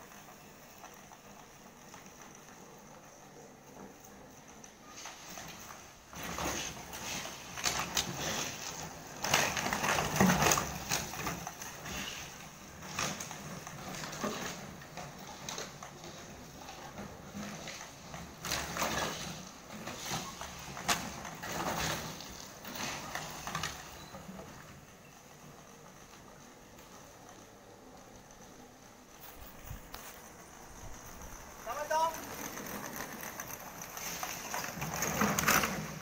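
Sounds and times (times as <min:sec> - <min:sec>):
plastic bottles knocking and crackling: 0:05.2 - 0:24.9, 0:29.9 - 0:36.0.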